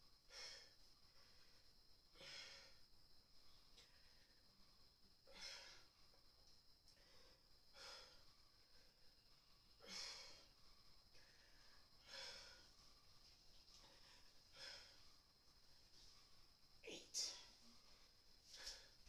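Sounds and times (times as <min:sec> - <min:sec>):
woman breathing heavily: 0:00.0 - 0:19.0.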